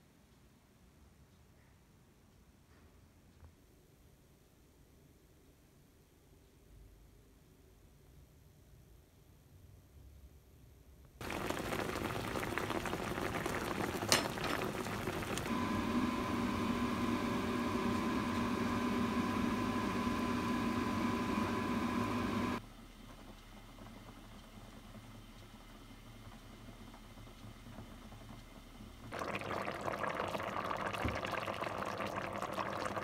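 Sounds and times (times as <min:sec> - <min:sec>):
burnt food sizzling and bubbling: 0:11.2 - 0:17.5, 0:25.7 - 0:33.0.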